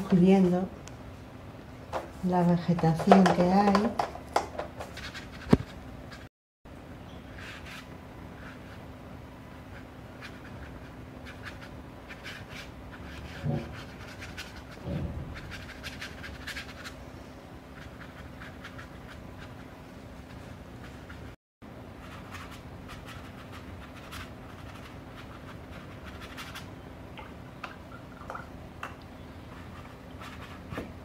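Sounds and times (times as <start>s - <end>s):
brush scratching on paper: 9.6s - 17.0s, 17.7s - 21.4s, 22.0s - 26.7s, 29.5s - 30.8s.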